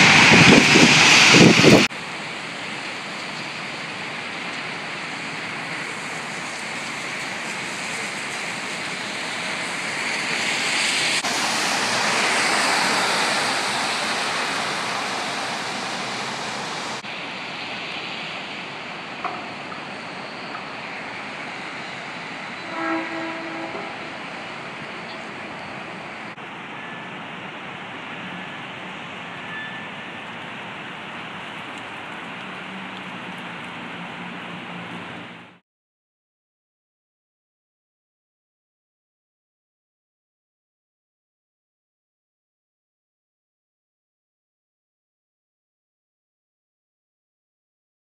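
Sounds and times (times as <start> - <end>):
tyres hissing on wet asphalt: 0.0 - 35.6
short horn tone: 22.6 - 24.2.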